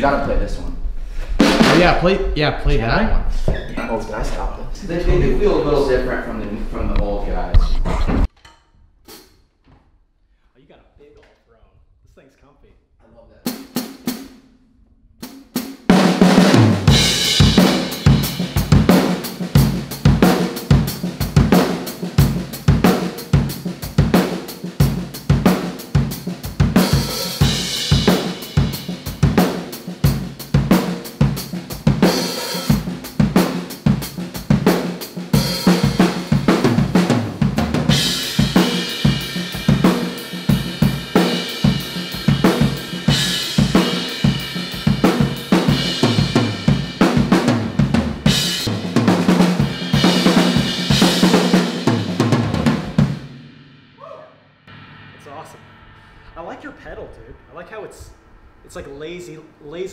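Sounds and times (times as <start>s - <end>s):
drum kit groove: 1.3s - 8.3s, 13.5s - 14.4s, 15.2s - 59.8s
cymbal crashes: 16.1s - 21.0s, 21.6s - 59.8s.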